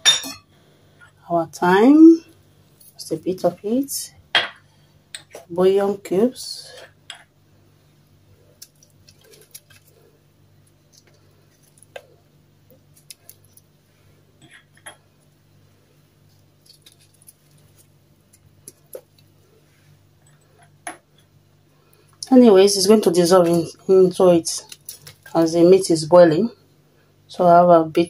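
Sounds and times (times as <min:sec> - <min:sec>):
low steady hum: 0:00.0 - 0:28.0
small clicks and rustles: 0:08.6 - 0:10.0, 0:16.2 - 0:19.3, 0:24.6 - 0:25.4.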